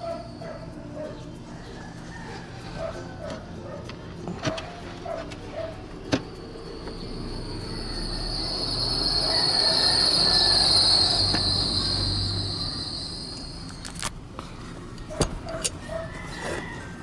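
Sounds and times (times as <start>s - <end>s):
high-pitched whine: 0.0s - 14.5s
metal socket ratchet clicking: 14.9s - 16.1s.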